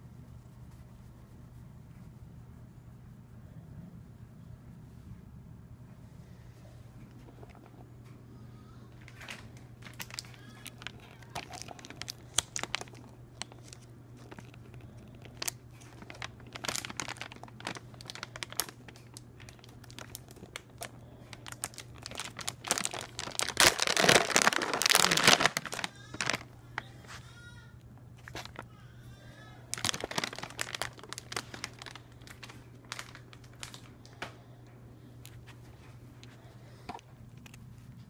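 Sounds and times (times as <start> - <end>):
crinkling and rustling: 6.6 - 28.7, 29.6 - 34.4, 35.2 - 38.0.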